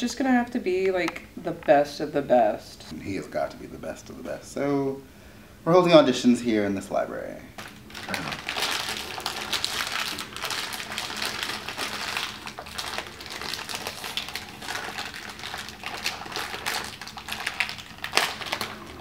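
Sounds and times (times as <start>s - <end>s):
plastic snack bag crinkling: 7.6s - 19.0s.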